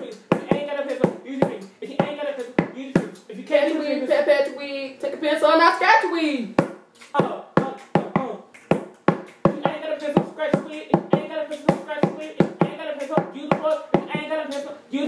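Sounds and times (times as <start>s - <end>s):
hand-struck drum beats: 0.0s - 3.3s, 6.6s - 14.4s
person singing wordless melody: 0.0s - 5.1s, 6.3s - 8.6s, 9.5s - 15.0s.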